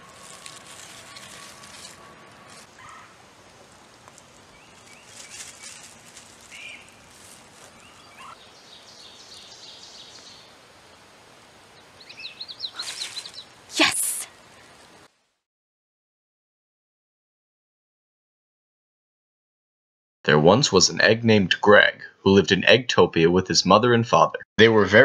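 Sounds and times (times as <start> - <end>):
small birds chirping: 0.2 - 15.0.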